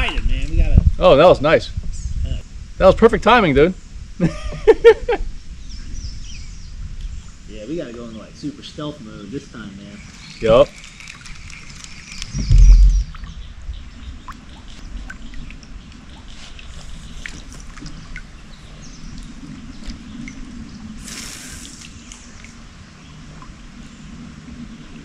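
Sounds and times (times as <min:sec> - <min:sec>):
water lapping around a kayak: 0:10.0 - 0:25.0
heavy low thump: 0:12.4 - 0:13.9
short hiss: 0:21.0 - 0:22.2.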